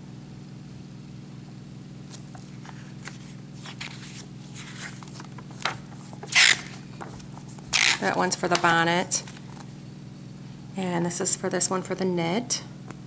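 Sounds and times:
steady low hum: 0.0s - 13.0s
paper pages rustling: 2.1s - 9.8s.

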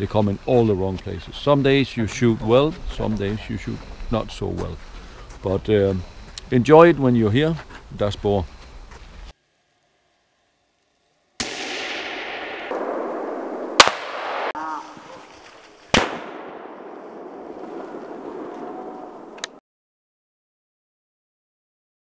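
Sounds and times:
rifle shots: 11.4s - 14.6s, 15.9s - 18.7s.

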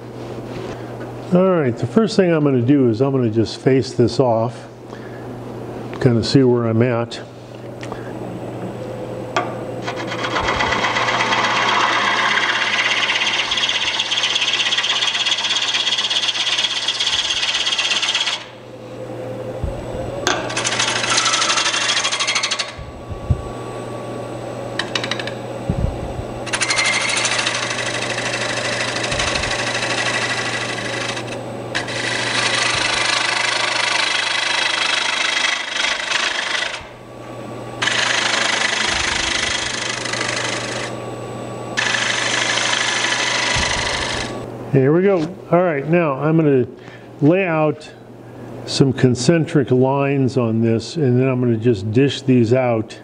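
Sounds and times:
lathe motor hum: 9.4s - 44.5s
gouge shearing wood on lathe: 9.8s - 18.5s, 20.5s - 22.8s, 26.4s - 36.9s, 37.8s - 40.9s, 41.8s - 44.4s.

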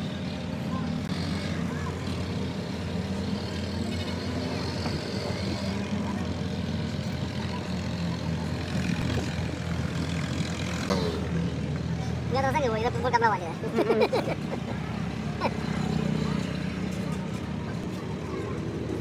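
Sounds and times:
engine droning steadily: 0.0s - 19.0s.

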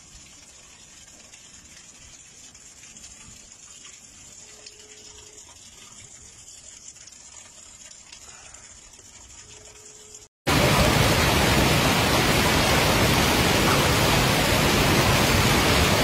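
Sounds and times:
hail and rain falling: 10.5s - 16.0s.

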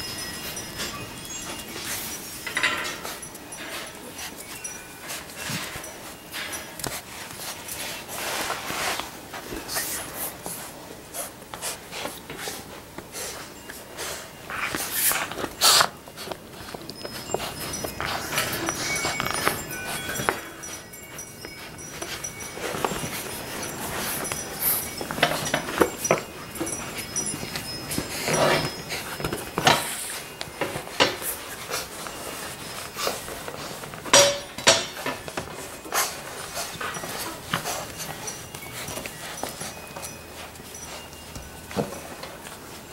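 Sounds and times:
sharp knocks and clinks: 0.0s - 10.2s, 13.4s - 42.9s
fabric toys rustling: 0.0s - 42.9s
puppies sniffing and breathing: 0.0s - 42.9s.

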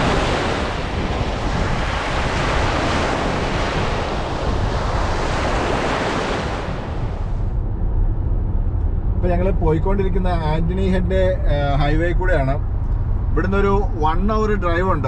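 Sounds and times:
waves washing on shore: 0.0s - 7.5s
wind buffeting microphone: 0.0s - 10.8s.

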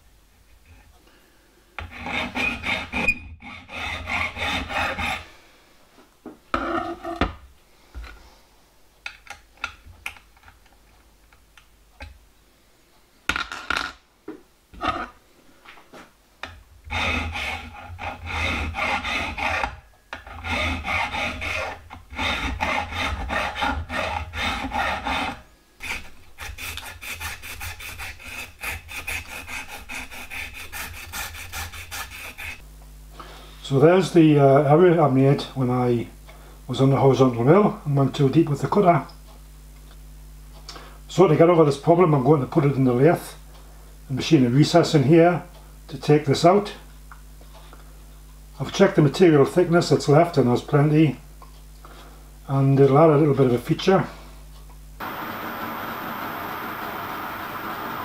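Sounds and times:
file rasping on metal: 1.8s - 5.3s, 16.9s - 32.6s.

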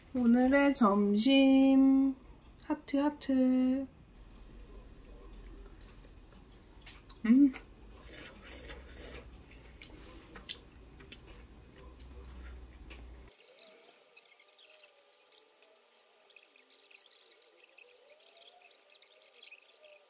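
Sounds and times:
low room hum: 0.0s - 13.8s
faint high chirping: 13.3s - 20.0s.

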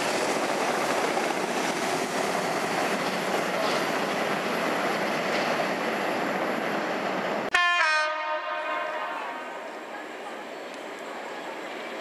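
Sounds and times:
freight train wagons rolling: 0.0s - 6.8s
locomotive horn chord: 7.5s - 9.5s.

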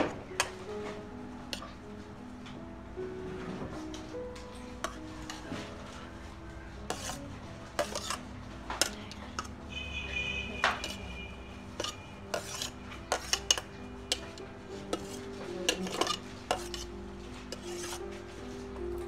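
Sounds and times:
ladle clinking and scraping on plate: 4.8s - 5.7s, 6.8s - 9.6s, 10.5s - 18.1s.

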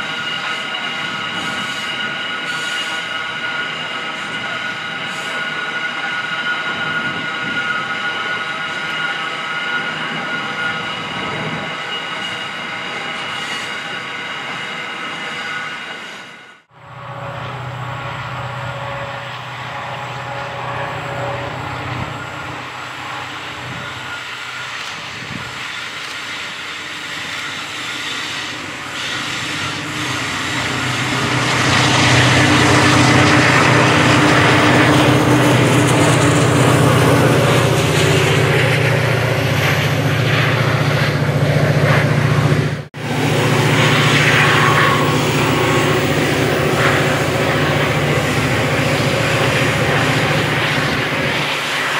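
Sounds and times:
train wheel and rail noise: 0.0s - 51.9s
locomotive engine drone: 16.6s - 51.9s.

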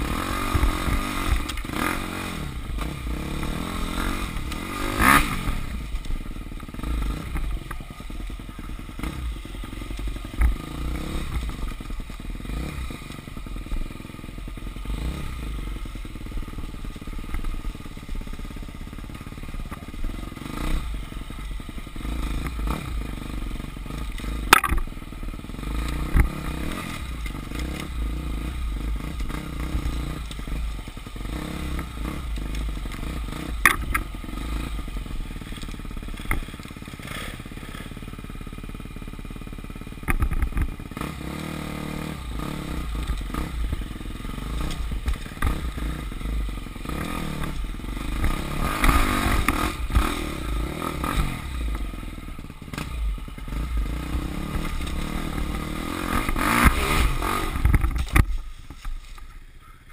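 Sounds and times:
dirt bike engine revving: 0.0s - 59.8s
bike clattering over bumps: 24.0s - 25.0s.

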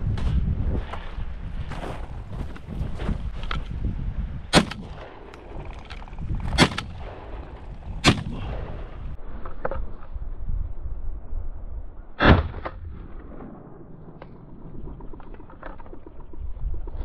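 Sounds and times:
shotgun shots: 4.5s - 5.2s, 6.5s - 7.4s, 8.0s - 8.7s.

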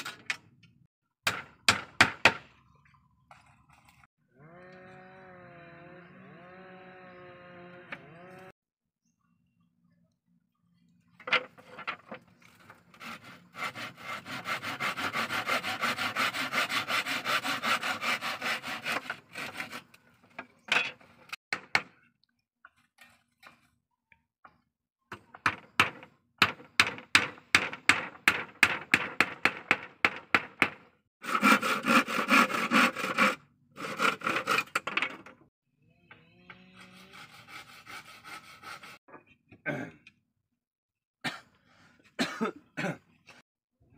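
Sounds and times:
hand saw cutting wood: 12.5s - 20.4s, 26.8s - 35.3s, 36.7s - 39.0s.

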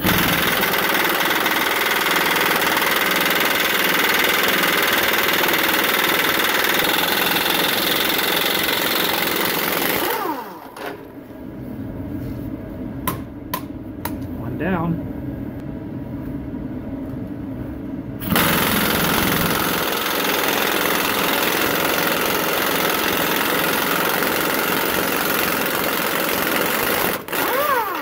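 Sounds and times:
air impact wrench hammering: 0.0s - 10.7s, 18.2s - 28.0s.

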